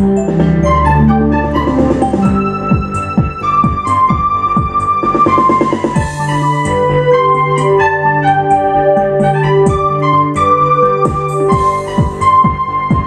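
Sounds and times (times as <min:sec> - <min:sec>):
keyboard melody: 0:00.0 - 0:13.0
sustained chords: 0:00.0 - 0:13.0
steady drum beat: 0:01.5 - 0:06.7, 0:11.0 - 0:13.0.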